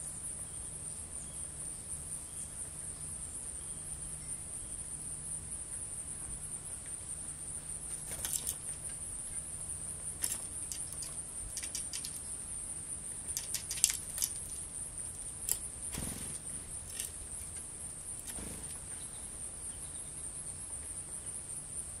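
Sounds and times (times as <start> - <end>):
insects trilling: 0.0 - 22.0
bird wing flutter: 7.8 - 8.9, 10.2 - 12.3, 13.2 - 17.6, 18.2 - 19.0.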